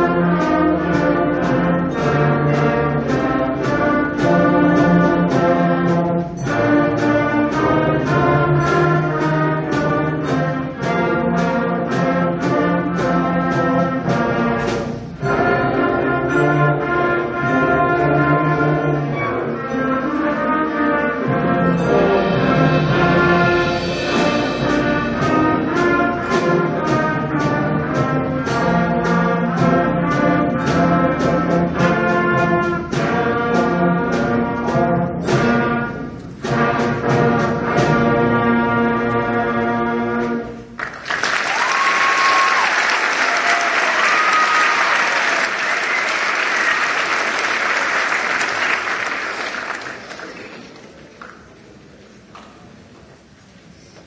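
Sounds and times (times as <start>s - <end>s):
concert band playing: 0.0s - 51.2s
audience applauding: 40.8s - 51.6s.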